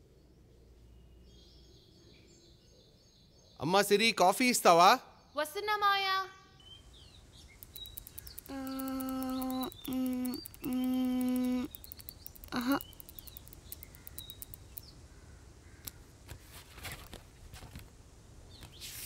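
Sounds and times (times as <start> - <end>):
faint bird chirps: 5.1 - 16.4
child speaking: 5.4 - 6.4, 8.5 - 11.7
child calling out: 8.5 - 11.7.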